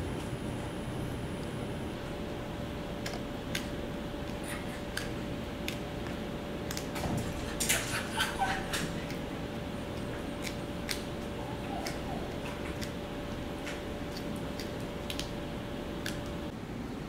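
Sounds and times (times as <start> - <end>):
faint hum: 0.0 - 17.0
puppy teeth crunching a chew: 3.0 - 15.4.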